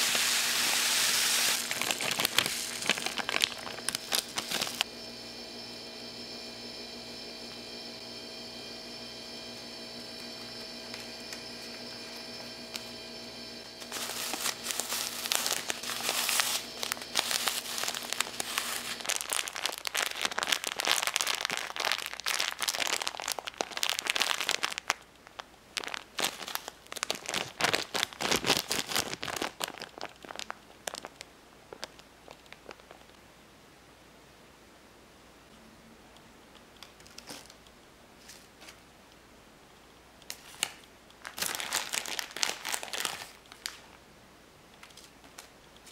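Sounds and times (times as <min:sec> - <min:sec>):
plastic bag crinkling: 0:00.0 - 0:04.9, 0:13.8 - 0:33.2, 0:40.3 - 0:44.0
steady tonal hum: 0:00.0 - 0:20.5.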